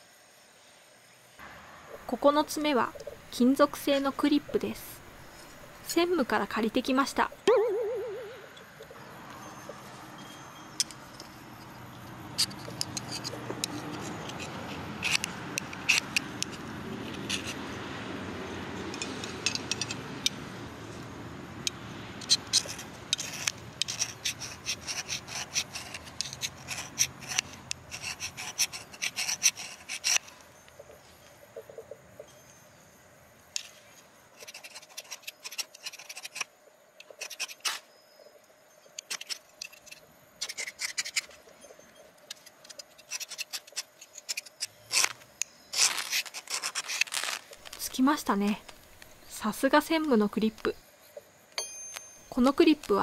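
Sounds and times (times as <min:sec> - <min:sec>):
metal scraping fire-starter rod: 0:12.3 - 0:17.7, 0:22.2 - 0:30.4, 0:39.0 - 0:48.0.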